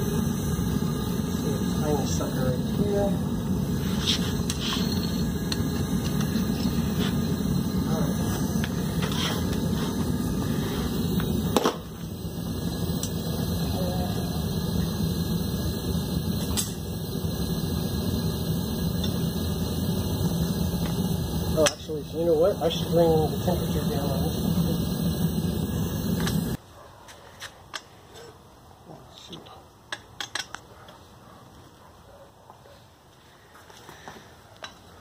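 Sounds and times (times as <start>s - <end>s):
propane burner rushing: 0.0s - 26.6s.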